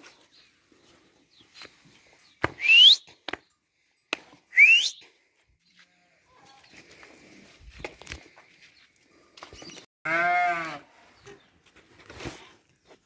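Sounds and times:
person whistling rising pitch: 2.6 - 3.1, 4.5 - 5.1.

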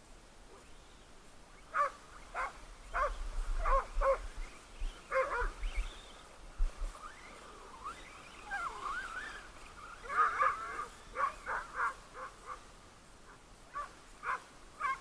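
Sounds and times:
dogs barking: 1.7 - 4.2, 10.0 - 12.6, 13.7 - 15.0.

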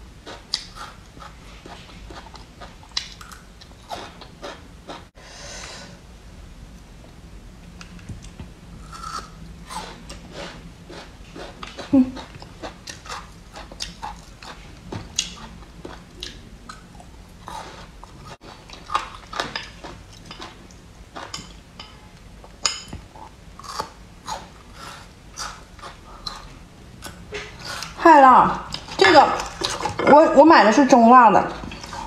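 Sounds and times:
person chewing food: 0.2 - 5.1, 8.1 - 21.6, 22.4 - 28.0.

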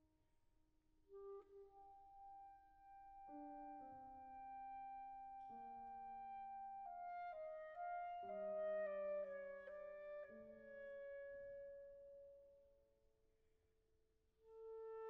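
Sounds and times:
clarinet with wind ensemble: 1.1 - 12.0.

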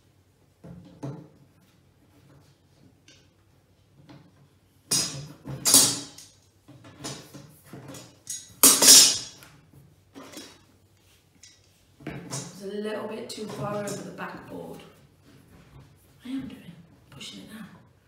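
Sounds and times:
wooden panels clattering: 4.9 - 9.4.

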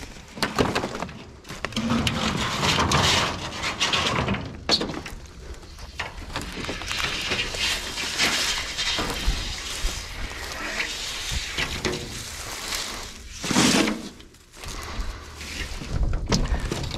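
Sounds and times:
wooden boards clattering: 0.3 - 5.2, 13.4 - 14.3, 15.7 - 16.9
tin sheets scraping and rattling: 0.4 - 5.0, 5.9 - 16.9.

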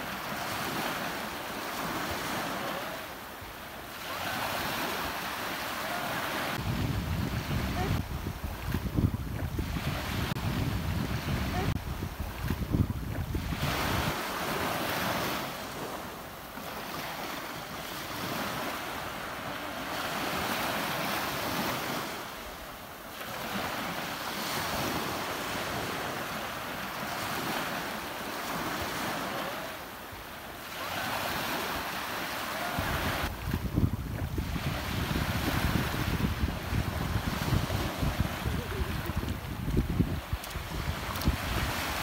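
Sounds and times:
ocean surf washing in: 0.0 - 42.0
wind rumble on microphone: 6.5 - 15.4, 32.7 - 42.0.

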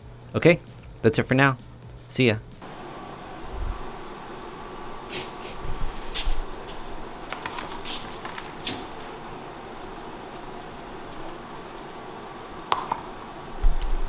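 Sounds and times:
conveyor belt motor running: 2.6 - 14.0.

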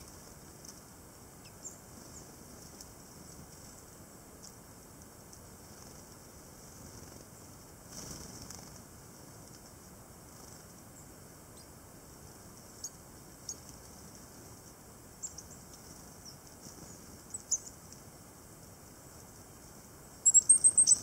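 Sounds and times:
faint background hiss: 0.0 - 21.0
coal tits high thin calls: 15.2 - 17.8, 20.2 - 21.0.

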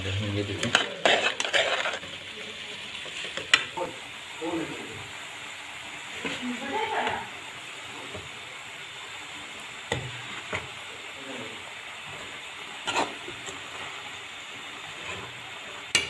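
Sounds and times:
vegetables sizzling in a pan: 0.0 - 16.0.

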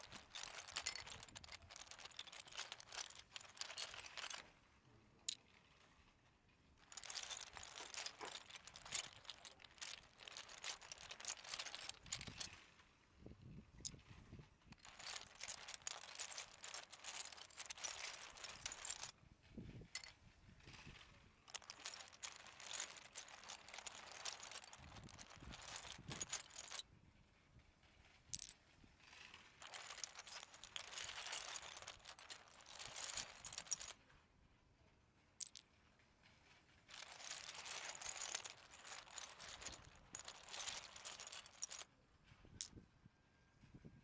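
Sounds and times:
toy train wheels clattering: 0.0 - 4.5, 6.8 - 12.6, 14.8 - 19.2, 20.7 - 26.8, 28.3 - 34.0, 35.4 - 35.7, 36.7 - 41.9.

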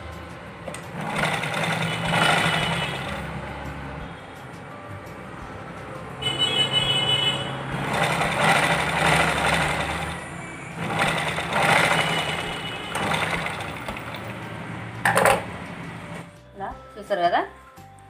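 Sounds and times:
sewing machine stitching: 0.7 - 3.3, 7.8 - 10.2, 10.8 - 14.4.

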